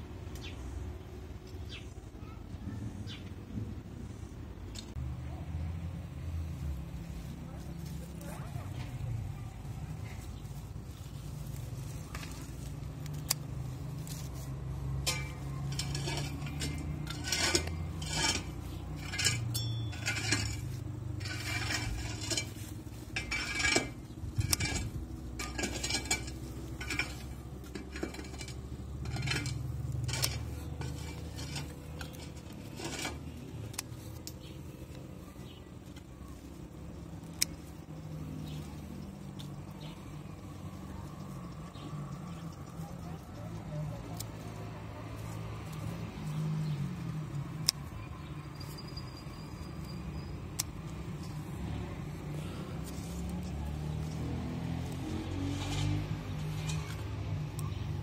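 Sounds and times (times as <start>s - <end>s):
scissors snipping: 11.4s - 20.6s, 37.0s - 40.1s, 40.9s - 48.2s, 50.1s - 58.0s.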